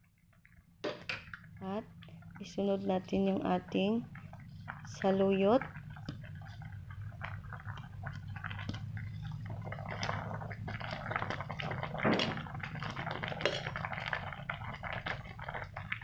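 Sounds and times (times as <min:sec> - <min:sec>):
broth boiling and bubbling: 0:00.0 - 0:16.0
metal spoon stirring: 0:12.8 - 0:15.0.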